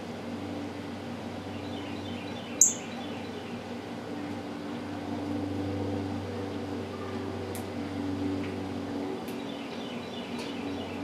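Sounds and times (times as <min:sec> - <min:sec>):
steady low hum: 0:00.0 - 0:11.0
high bird chirps: 0:01.7 - 0:03.4.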